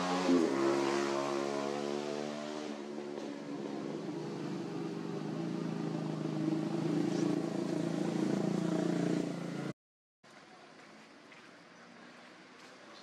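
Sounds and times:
engine running: 2.8s - 9.7s.

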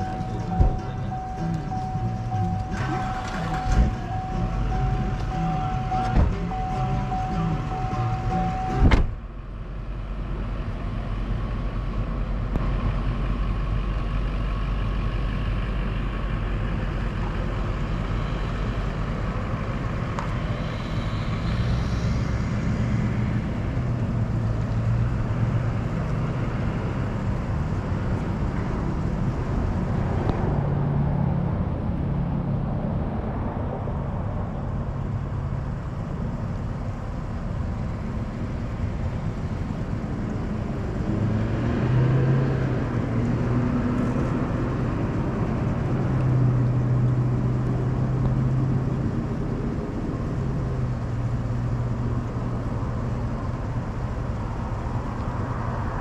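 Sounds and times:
steady tone: 0.0s - 10.0s
vehicle engine rumble: 0.0s - 56.0s
sharp thump: 8.8s - 9.2s.

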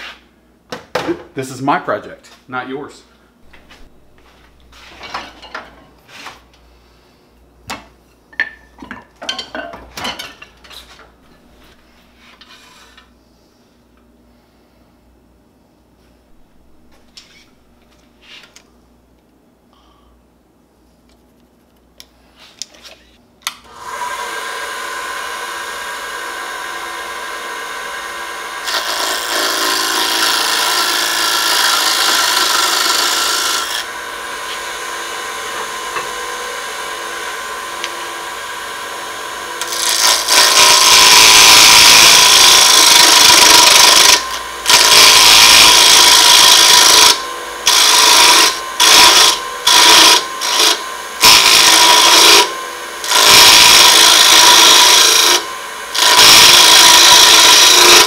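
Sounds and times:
lathe motor whine: 23.7s - 58.0s
turning tool cutting wood: 23.7s - 58.0s.

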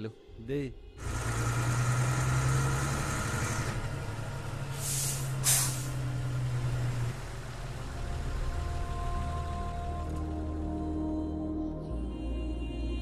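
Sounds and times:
soft music: 0.0s - 1.0s, 7.7s - 13.0s
engine hum: 0.9s - 11.5s
loud hisses: 4.8s - 5.9s.

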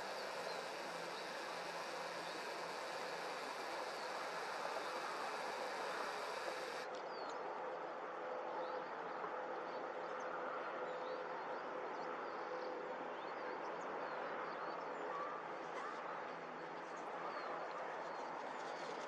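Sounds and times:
outdoor background hiss: 0.0s - 6.9s
small birds chirping: 0.0s - 6.9s.

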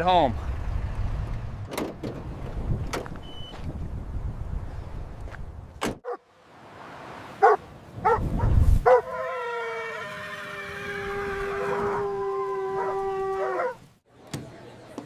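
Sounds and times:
dogs barking: 7.4s - 8.2s, 8.8s - 9.3s, 11.6s - 13.8s
dog howling: 8.9s - 13.8s.

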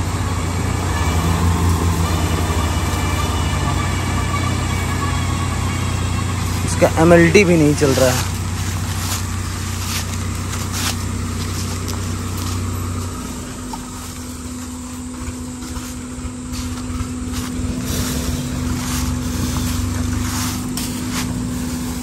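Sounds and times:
low engine hum: 0.0s - 22.0s.

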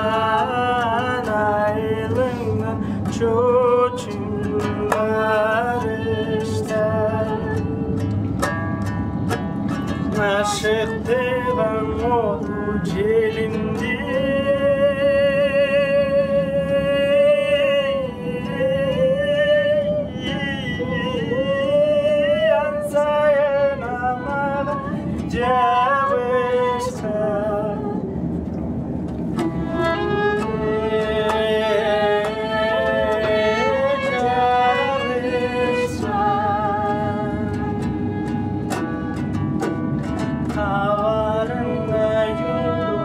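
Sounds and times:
plucked string instrument: 0.0s - 43.0s
violin melody with vibrato: 9.0s - 14.7s, 18.1s - 27.0s, 29.4s - 43.0s.

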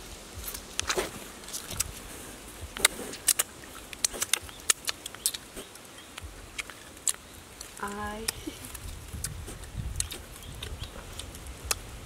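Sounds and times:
fingers tearing grilled fish: 2.8s - 11.9s.

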